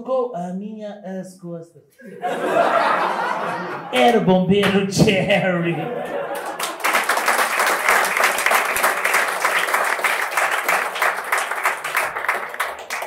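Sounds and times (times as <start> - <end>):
audience applauding: 6.1 - 13.0.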